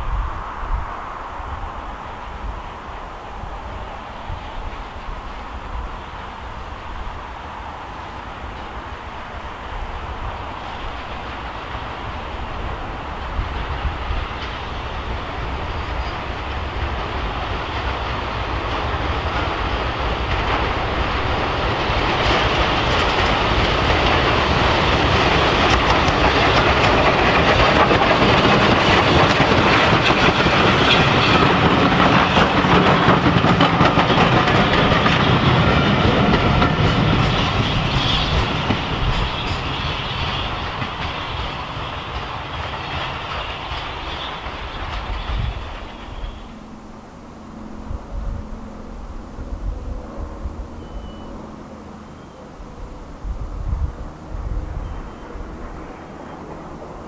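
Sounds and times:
steam locomotive chuffing: 8.0s - 52.8s
train wheels clacking over rail joints: 8.2s - 47.0s.

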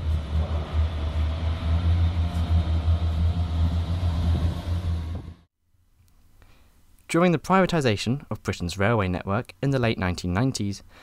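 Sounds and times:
diesel train rumble: 0.0s - 5.5s.

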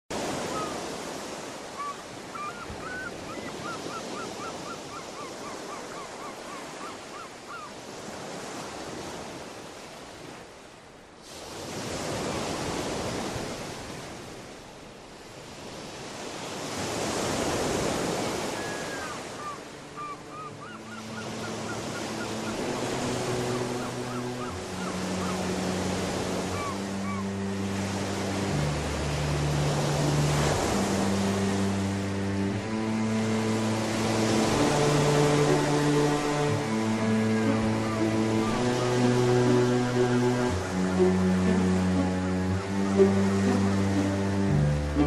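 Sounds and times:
birds chirping: 1.7s - 7.8s, 18.4s - 28.0s, 33.9s - 44.0s
ocean surf breaking: 7.8s - 45.0s.

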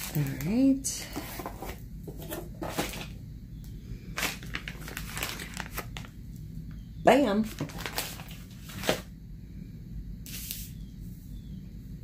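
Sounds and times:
plastic packaging crinkling: 4.1s - 6.3s, 7.4s - 9.1s.

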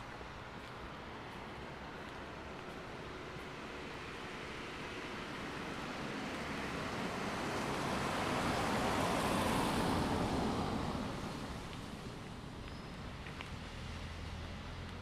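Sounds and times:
vehicle passing by: 6.1s - 11.6s.

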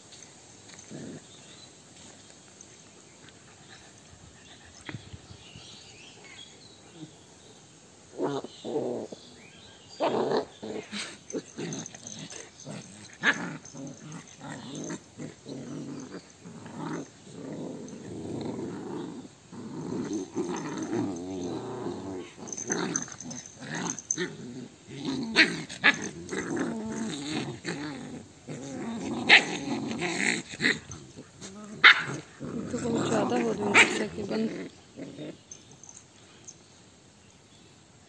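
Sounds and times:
puppies growling and yapping: 10.0s - 36.0s.

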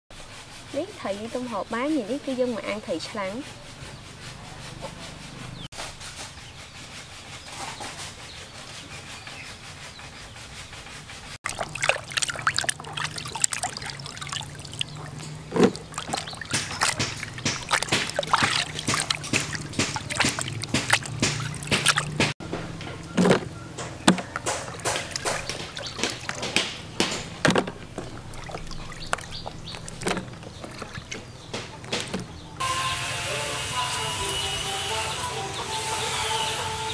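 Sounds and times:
water splashing in a basin: 11.4s - 22.4s, 23.2s - 32.3s.

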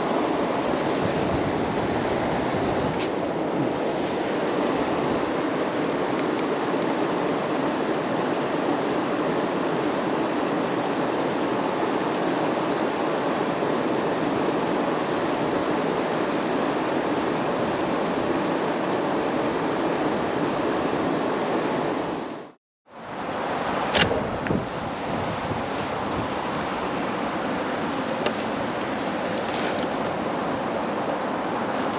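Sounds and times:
steady rushing noise: 23.2s - 31.9s
sharp click: 23.9s - 24.6s.

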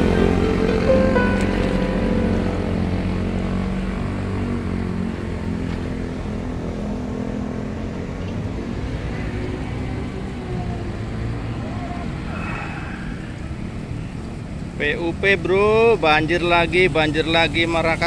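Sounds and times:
motorcycle engine running: 0.0s - 5.6s.

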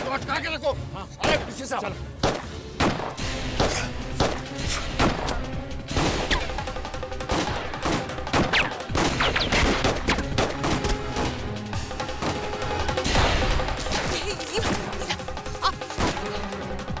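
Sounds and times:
gunshots: 1.2s - 1.6s, 2.2s - 11.4s, 12.2s - 14.8s.

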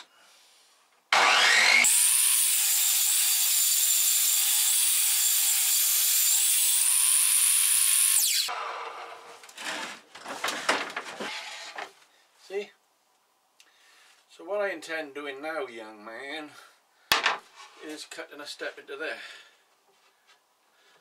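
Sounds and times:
power cutting tool cutting: 1.1s - 9.2s.

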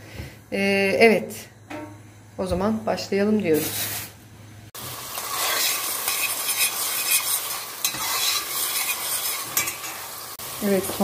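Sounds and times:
onions sizzling in oil: 4.8s - 11.0s
metal spoon scraping a pot: 5.3s - 10.0s.

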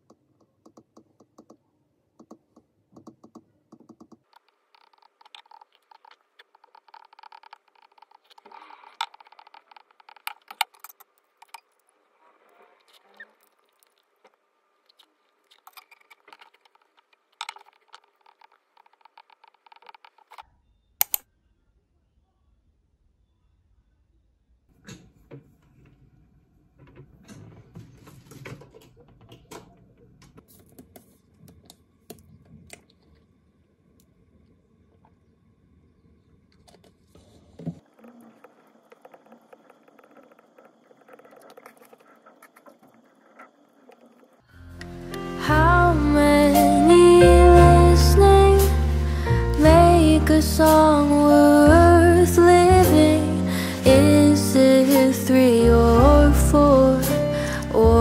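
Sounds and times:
sharp clicks: 21.0s - 21.2s.

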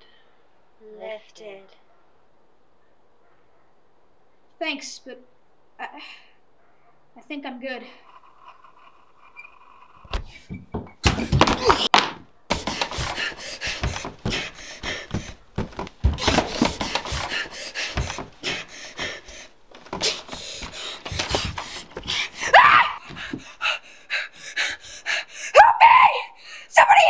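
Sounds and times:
boy breathing hard and gasping: 12.5s - 25.6s, 26.2s - 26.7s.

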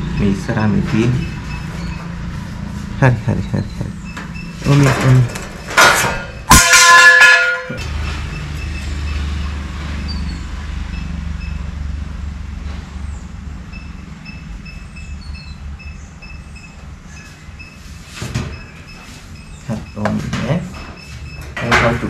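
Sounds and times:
vehicle engine running: 0.0s - 5.8s, 7.8s - 18.0s.

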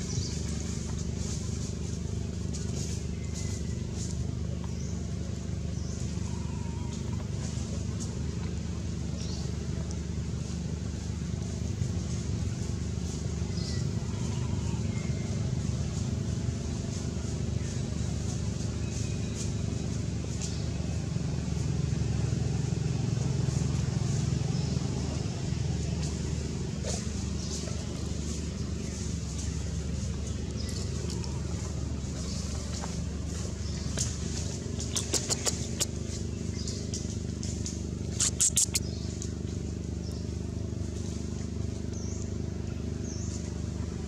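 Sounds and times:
engine low rumble: 0.0s - 44.0s
low mechanical hum: 0.0s - 44.0s
faint high ticks: 34.8s - 36.1s, 36.9s - 39.4s
faint high chirps: 38.2s - 38.9s.

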